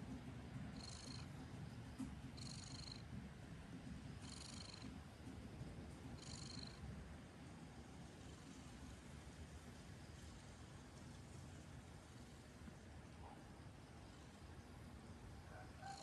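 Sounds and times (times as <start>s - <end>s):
cat purring: 0.6s - 6.9s, 8.0s - 9.2s, 11.8s - 14.8s.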